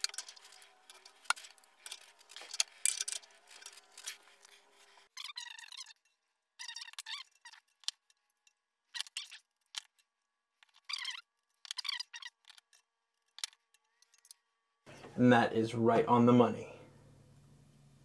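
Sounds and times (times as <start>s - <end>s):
high-pitched metal squeaks: 0.0s - 8.0s.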